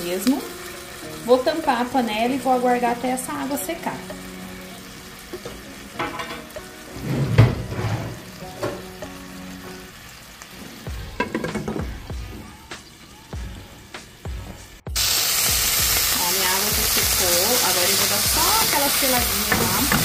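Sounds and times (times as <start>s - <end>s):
patties sizzling in a frying pan: 0.0s - 7.1s, 14.9s - 20.0s.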